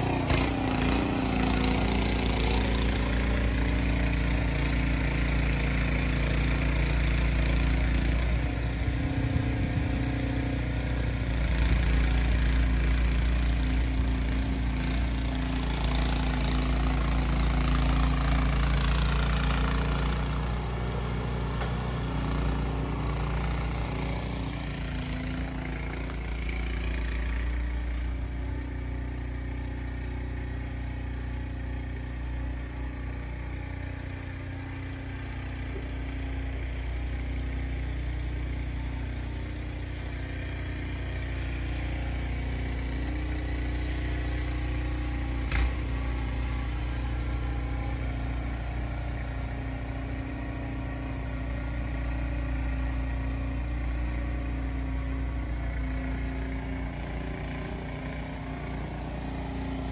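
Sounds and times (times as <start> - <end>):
snowblower engine running: 0.0 - 59.9
sharp click: 45.5 - 45.7.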